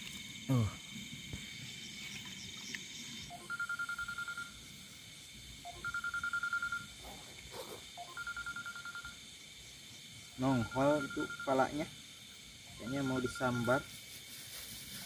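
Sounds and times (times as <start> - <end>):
night insects chorus: 0.0 - 15.0
animal calling in pulsed trills: 2.2 - 4.8, 5.6 - 7.1, 8.0 - 9.6, 10.2 - 14.1.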